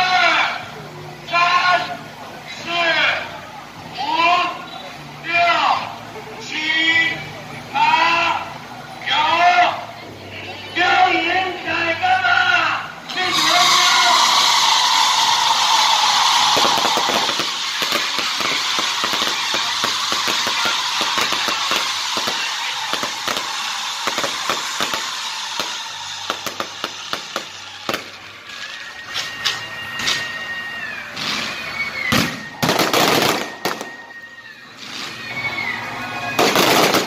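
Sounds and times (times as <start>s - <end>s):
fireworks launching hiss: 13.1s - 34.1s, 36.4s - 37.0s
high whistle: 13.1s - 37.0s
fireworks bangs and crackles: 14.3s - 37.0s.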